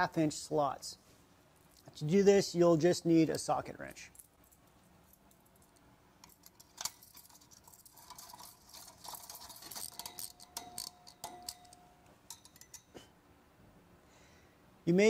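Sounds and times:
metal hose clamp clinking: 4.1 - 13.1
socket wrench clicking: 8.0 - 13.0.

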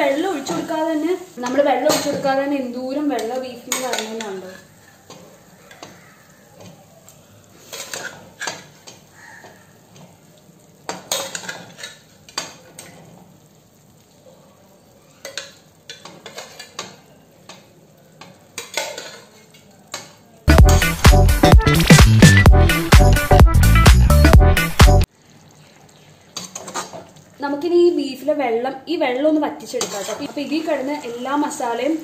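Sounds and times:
faint sizzle: 0.0 - 20.6, 25.0 - 32.0
spoon scraping a pan: 1.4 - 6.8, 7.6 - 10.2, 10.9 - 13.3, 15.1 - 20.2, 26.4 - 27.2, 29.6 - 31.6.

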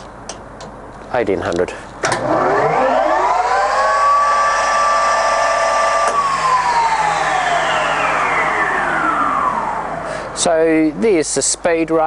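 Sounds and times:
lathe gearing whine: 2.0 - 11.0.

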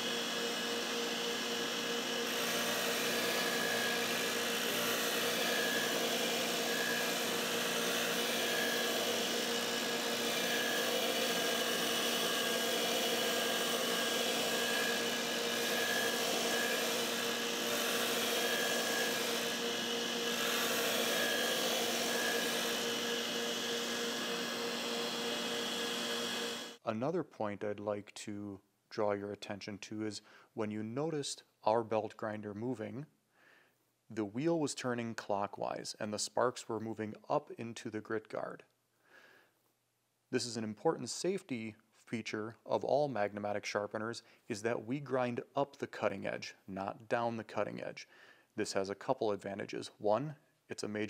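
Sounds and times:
belt grinder motor hum: 0.0 - 26.8.

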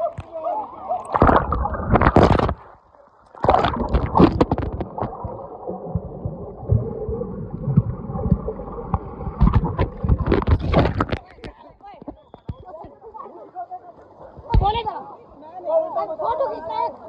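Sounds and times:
pool water splashing: 0.0 - 11.4
muffled water gurgling: 1.0 - 11.5.

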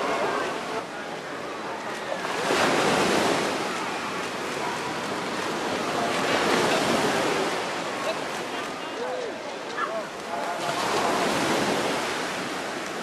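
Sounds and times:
ocean surf breaking: 0.0 - 13.0.

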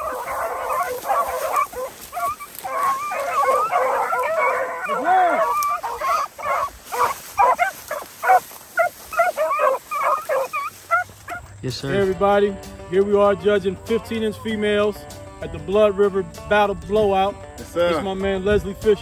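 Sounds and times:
dogs barking and yipping: 0.0 - 12.0
hounds baying: 0.0 - 12.1.

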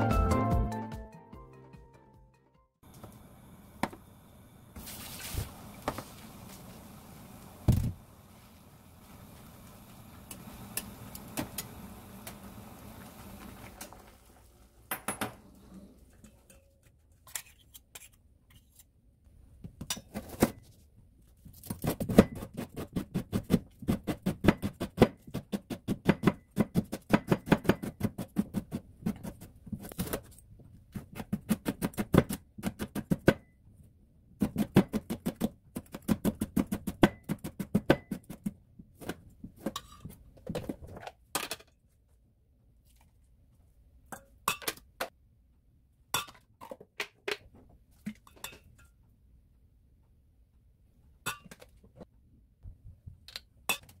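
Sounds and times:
water boiling in a pot: 2.9 - 14.9.

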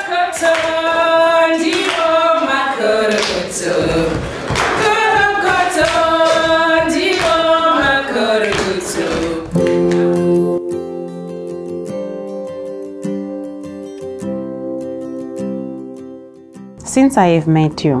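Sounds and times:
women singing unaccompanied: 0.0 - 10.6.

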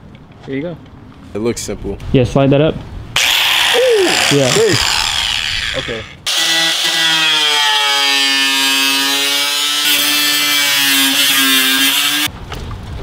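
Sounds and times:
angle grinder cutting metal: 3.2 - 12.3.

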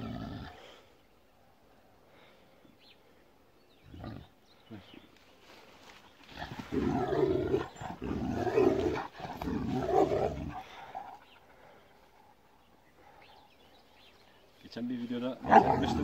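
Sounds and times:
dog growling: 0.0 - 0.7, 6.2 - 13.5, 15.4 - 16.0.

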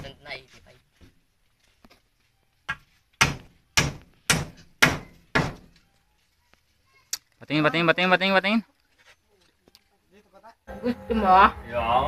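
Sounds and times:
hammer striking wood: 2.7 - 5.8.

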